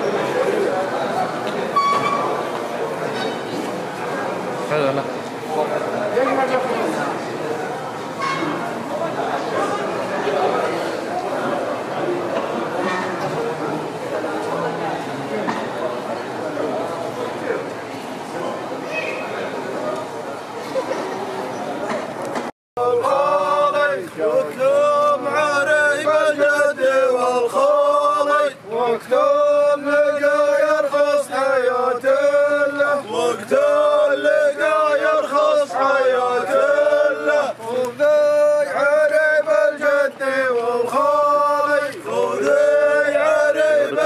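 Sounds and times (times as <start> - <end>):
male voices chanting: 22.8 - 44.0.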